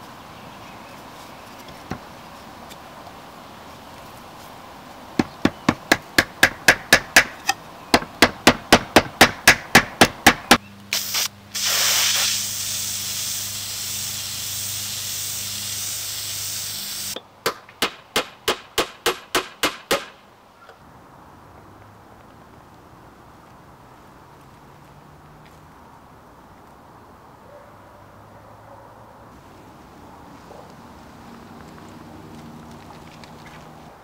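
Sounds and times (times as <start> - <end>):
hammer striking nails into wood: 5.2 - 10.6, 17.5 - 20.2
spray paint can hissing: 10.9 - 17.2.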